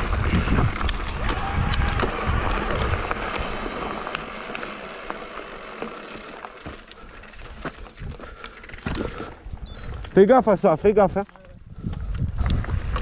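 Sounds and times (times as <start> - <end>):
wind buffeting microphone: 0.0 - 4.0, 7.5 - 13.0
bike rattling over rough trail: 0.0 - 13.0.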